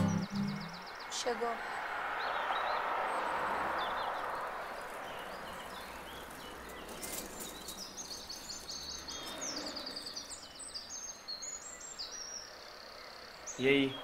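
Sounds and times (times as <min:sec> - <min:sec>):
bird fast repeated chirps: 0:00.0 - 0:01.0
birds chirping: 0:00.0 - 0:14.0.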